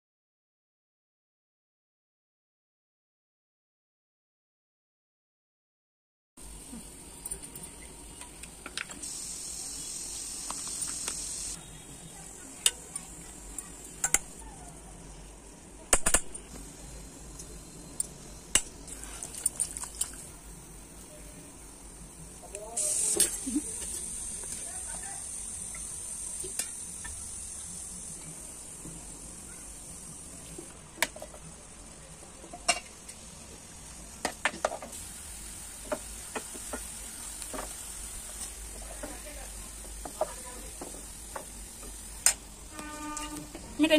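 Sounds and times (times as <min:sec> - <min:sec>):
onions sizzling in oil: 0:06.4 - 0:15.6, 0:16.5 - 0:43.9
soft high hiss: 0:06.5 - 0:14.6.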